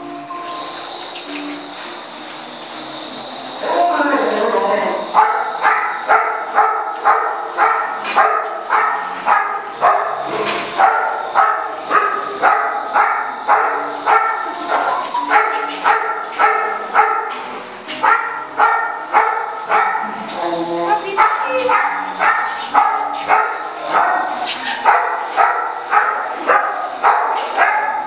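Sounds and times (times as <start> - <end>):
dog barking: 5.1 - 17.4, 18.0 - 20.2, 21.1 - 28.0.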